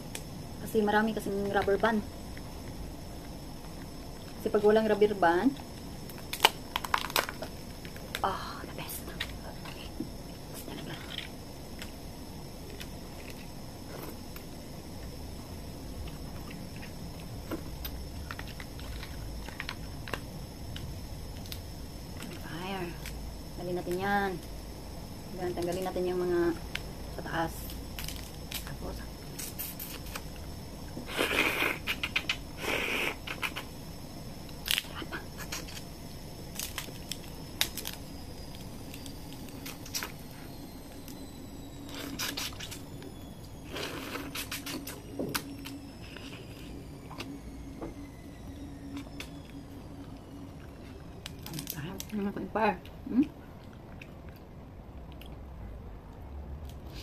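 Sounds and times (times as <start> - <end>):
steady low hum: 0.0 - 57.0
crab shell cracking: 6.1 - 8.2.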